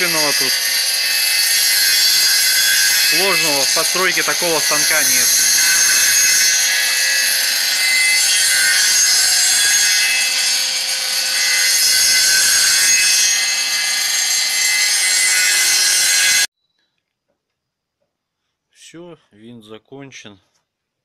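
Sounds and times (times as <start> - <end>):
circular saw cutting wood: 0.0 - 16.5.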